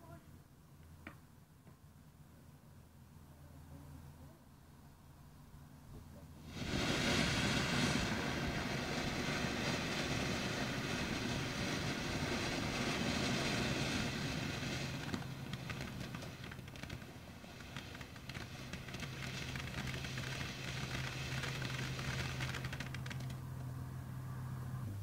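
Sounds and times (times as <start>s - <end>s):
firework crackling pops: 6.4s - 23.8s
firework fountain hissing: 6.4s - 23.8s.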